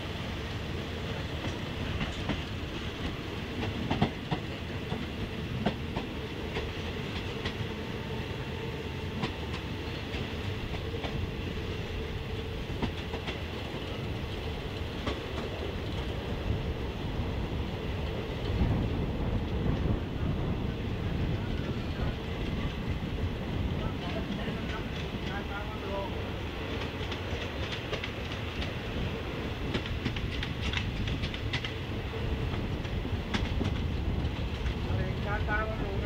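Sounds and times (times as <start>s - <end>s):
train rolling rumble: 0.0s - 36.0s
wheels clacking on rail joints: 1.3s - 7.7s, 9.1s - 16.2s, 23.7s - 36.0s.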